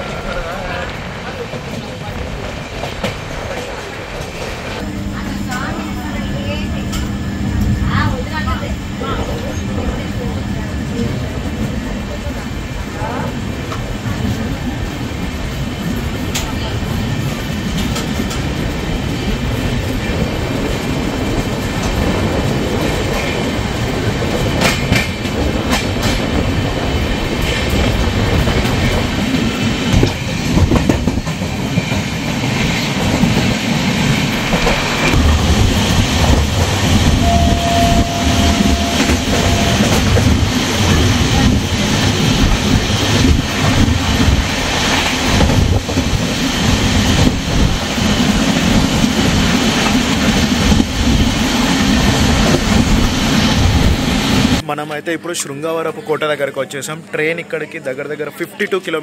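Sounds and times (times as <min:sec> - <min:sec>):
train rumbling at speed: 0:00.0 - 0:54.7
wheels clacking over rail joints: 0:19.3 - 0:54.6
short steady tone: 0:37.0 - 0:40.4.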